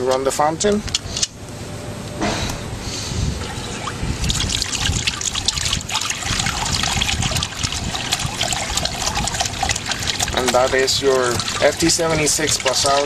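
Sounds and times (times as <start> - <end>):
fountain water trickling and splashing: 3.4 - 13.0.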